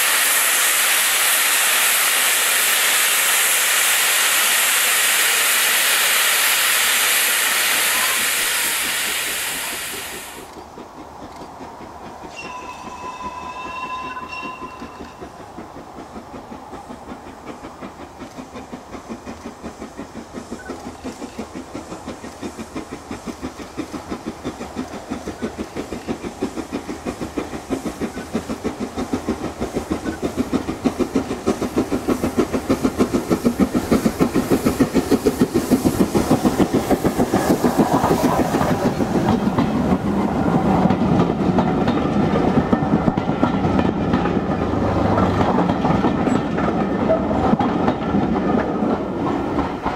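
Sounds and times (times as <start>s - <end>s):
steam locomotive rhythmic beat: 0.0s - 49.9s
train wheels clattering on rails: 0.0s - 49.9s
steam locomotive whistle: 7.3s - 10.4s, 12.3s - 15.2s.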